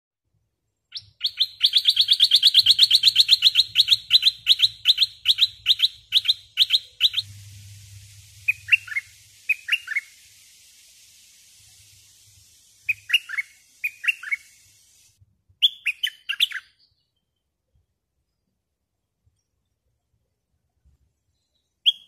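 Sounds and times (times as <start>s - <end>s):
bulbul calling sharp chips: 1.1s - 16.6s
soft falling bird notes: 7.1s - 15.2s.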